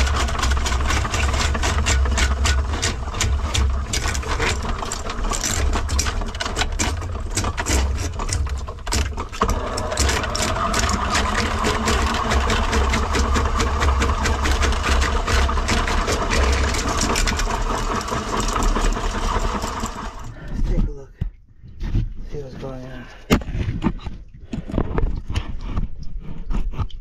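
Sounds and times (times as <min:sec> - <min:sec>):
auger cable clattering in pipe: 0:00.0 - 0:20.9
low motor hum: 0:00.0 - 0:21.8.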